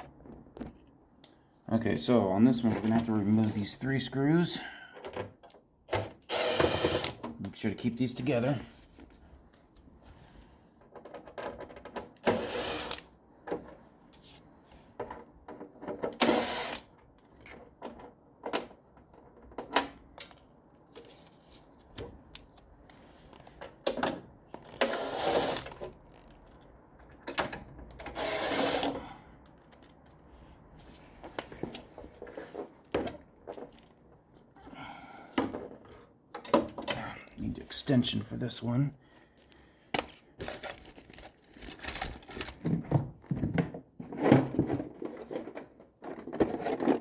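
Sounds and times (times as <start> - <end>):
cordless driver spinning: 6.3 - 7.1, 12.3 - 13.0
clatter of tool and screws: 23.3 - 30.3, 39.4 - 42.8.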